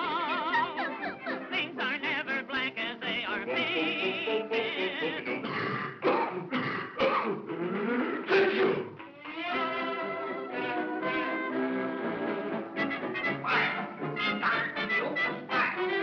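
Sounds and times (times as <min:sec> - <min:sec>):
small band playing: 0:07.4 - 0:16.0
person yodel-like singing: 0:08.4 - 0:11.6.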